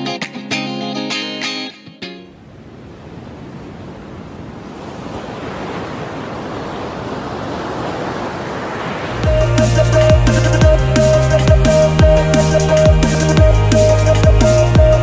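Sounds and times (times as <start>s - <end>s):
ocean surf rushing: 2.2s - 15.0s
bass-heavy electronic music: 9.2s - 15.0s.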